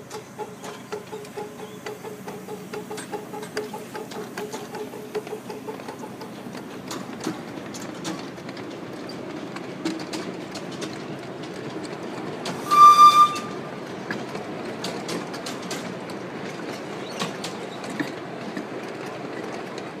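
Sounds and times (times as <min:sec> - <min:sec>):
miniature train wheels clicking: 0:00.0 - 0:12.6, 0:14.1 - 0:20.0
train rumble: 0:00.0 - 0:20.0
train whistle blast: 0:12.6 - 0:13.8.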